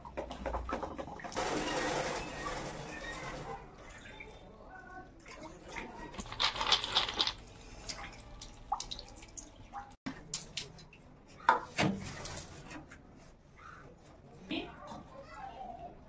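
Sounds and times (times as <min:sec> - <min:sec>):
water poured into clay pot: 0:05.2 - 0:11.0.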